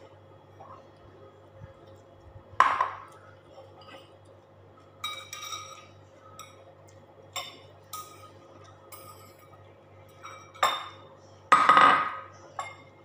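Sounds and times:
spoon clinking porcelain bowl: 5.0 - 6.7, 7.3 - 13.0
tableware clinking: 5.0 - 6.7, 7.3 - 13.0.

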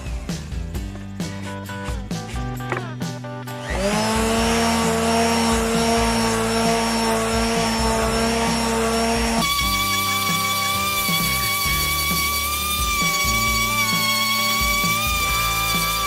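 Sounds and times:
palm sander sanding wood: 3.7 - 16.0.

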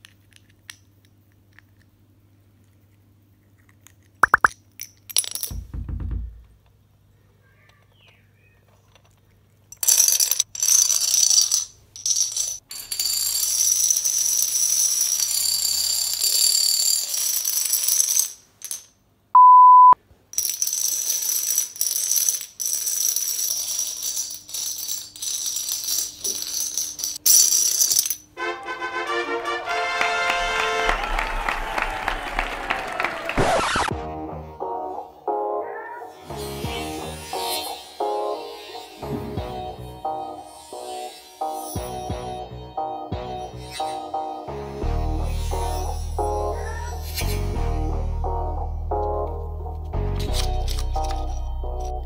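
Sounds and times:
dominoes clattering on wooden floor: 4.3 - 5.6, 8.9 - 19.0, 20.3 - 28.4, 50.2 - 52.0
loud steady beep: 19.4 - 20.0.

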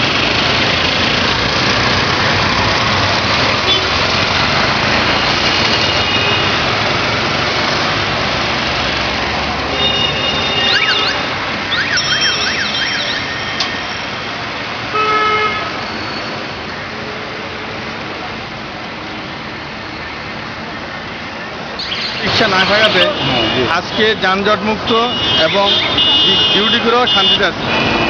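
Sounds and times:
rushing street traffic: 0.0 - 28.0
high warbling tones: 10.5 - 14.5.

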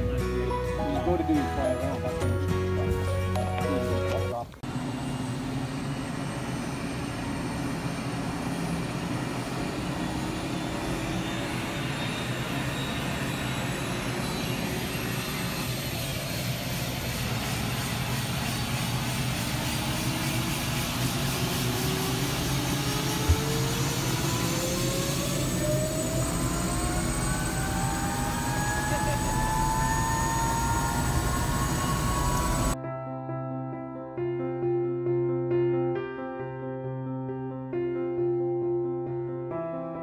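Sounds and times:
helicopter engine and rotor drone: 3.6 - 32.8
helicopter whine rising in pitch: 3.6 - 32.8.

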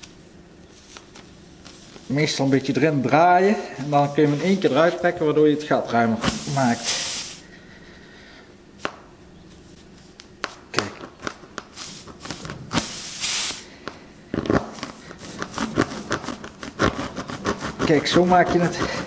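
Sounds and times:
short hiss: 6.2 - 7.4, 12.8 - 13.8
rasp tool scraping in tyre: 14.7 - 19.0.

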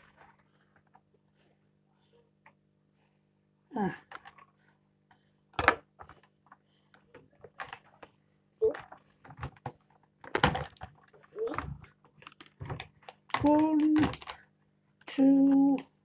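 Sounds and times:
plastic packaging clicking: 10.2 - 14.4.

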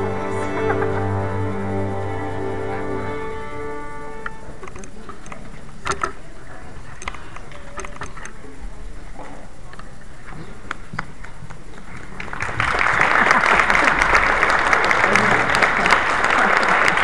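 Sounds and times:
room noise hiss: 0.0 - 17.0
faint murmur of voices: 2.4 - 12.0
audience clicks and rustles: 4.2 - 17.0
applause: 11.9 - 17.0.

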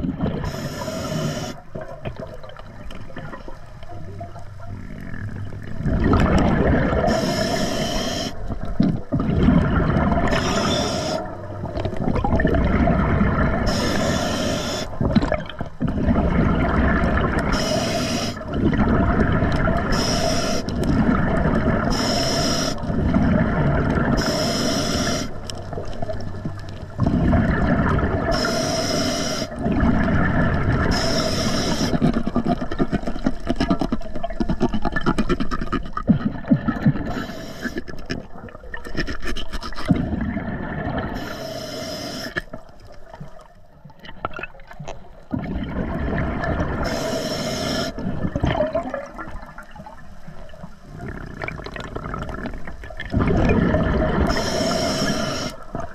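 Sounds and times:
exhaled bubbles gushing: 0.0 - 41.4, 42.3 - 55.9
hissing regulator inhalations: 0.4 - 1.7, 7.0 - 8.5, 10.2 - 11.4, 13.6 - 15.0, 17.4 - 18.5, 19.8 - 20.8, 21.8 - 23.0, 24.1 - 25.6, 28.2 - 29.7, 30.8 - 32.3, 37.0 - 38.1, 41.2 - 42.6, 46.8 - 48.0, 54.2 - 55.9.

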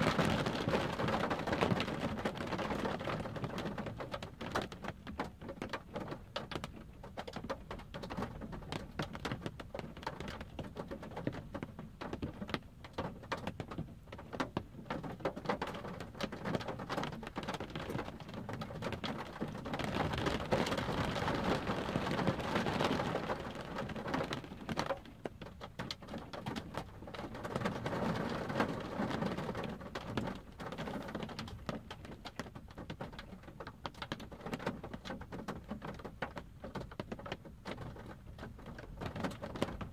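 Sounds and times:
rain pattering on a car: 0.0 - 39.9.

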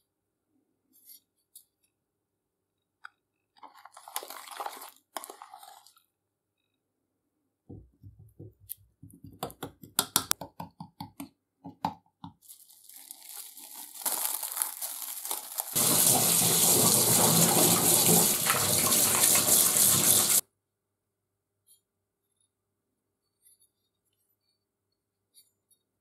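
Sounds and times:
plastic wrap crinkling: 12.4 - 17.5
tap running into sink: 15.8 - 20.4.

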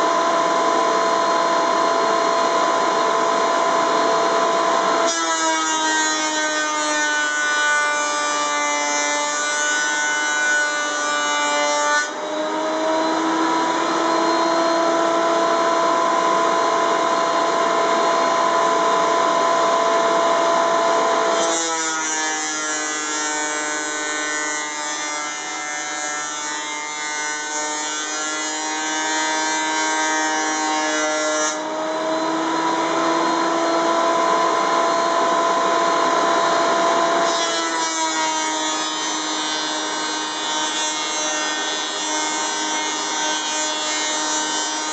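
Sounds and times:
thickness planer motor whine: 0.0 - 44.9.

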